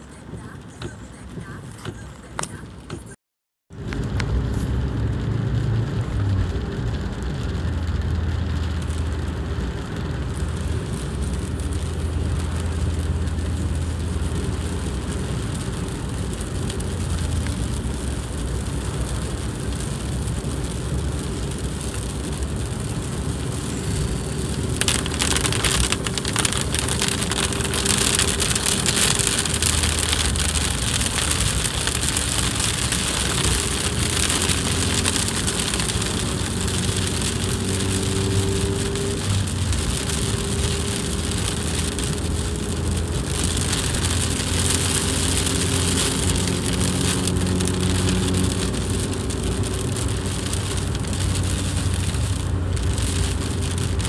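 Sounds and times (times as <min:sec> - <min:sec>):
low engine hum: 0:00.0 - 0:54.0
rain on car roof: 0:00.0 - 0:54.0
tyres hissing on wet road: 0:04.0 - 0:54.0.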